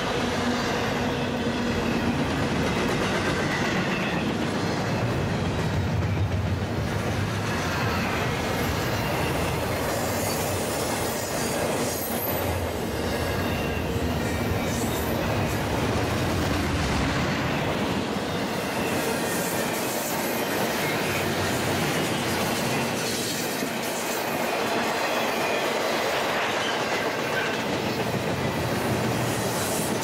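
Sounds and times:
freight train wheels rumbling: 0:00.0 - 0:30.0
high wheel squeal: 0:03.4 - 0:05.2, 0:07.5 - 0:15.7.

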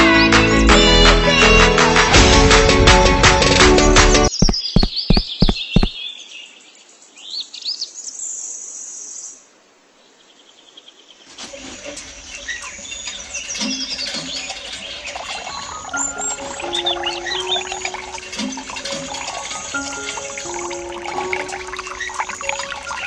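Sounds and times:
birds chirping and singing: 0:04.3 - 0:06.6, 0:12.0 - 0:23.0.

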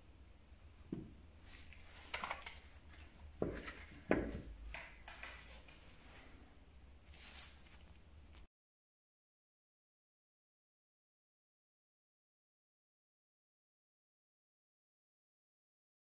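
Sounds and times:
rubbing and rustling: 0:01.4 - 0:08.5.

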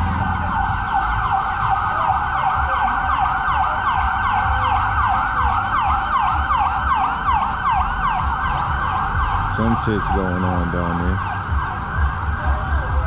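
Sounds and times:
ambulance siren yelping: 0:00.0 - 0:13.0.

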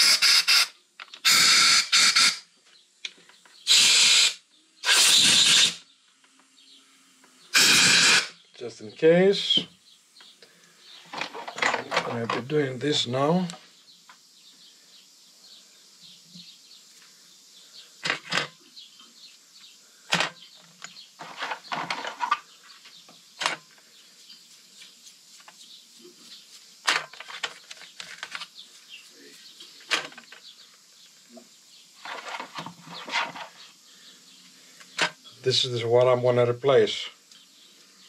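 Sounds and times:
metal tools clinking and scraping: 0:11.1 - 0:12.6.

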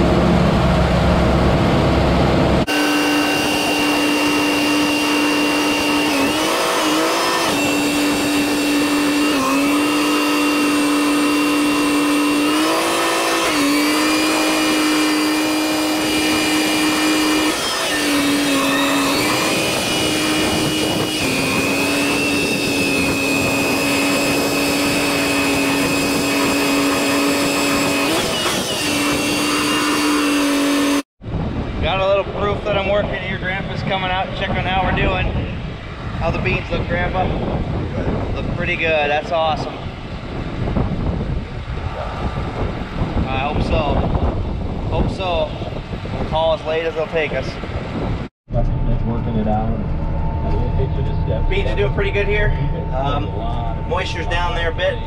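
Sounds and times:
deep engine rumble: 0:00.0 - 0:12.9, 0:30.5 - 0:55.0
tractor engine whine: 0:00.0 - 0:55.0.

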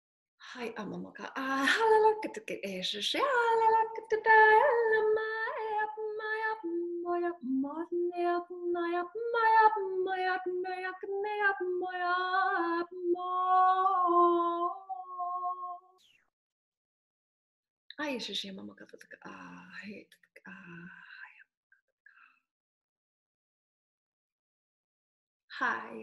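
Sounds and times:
woman singing wordless syllables: 0:03.0 - 0:16.0.

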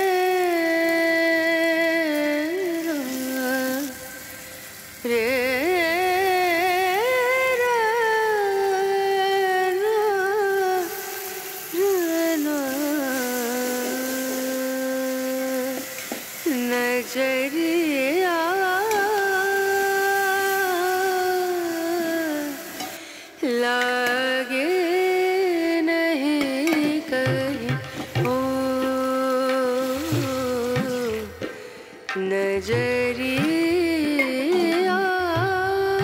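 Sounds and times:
person humming slow melody: 0:13.4 - 0:15.3.

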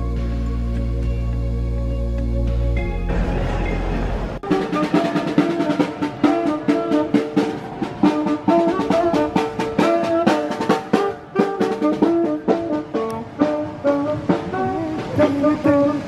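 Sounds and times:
drum beating quick rhythm: 0:04.4 - 0:16.0
saxophone melody: 0:04.4 - 0:16.0.

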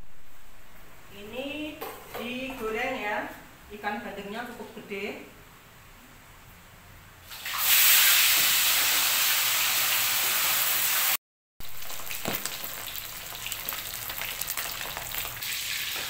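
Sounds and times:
fish sizzling in hot oil: 0:07.3 - 0:16.0
oil crackling pops: 0:11.8 - 0:16.0.

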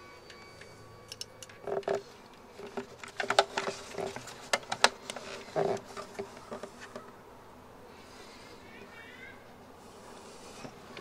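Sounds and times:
small metal clicks and clinks: 0:00.2 - 0:02.0.

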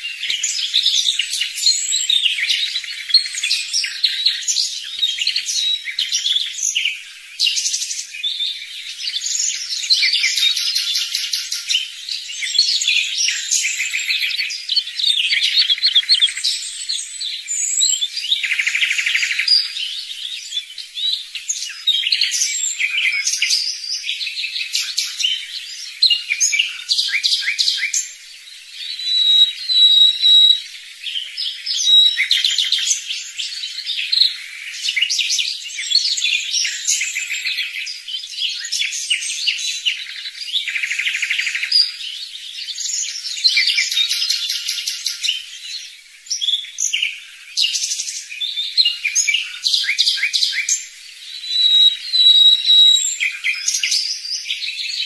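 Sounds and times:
songbirds chirping and trilling: 0:00.0 - 0:55.0.

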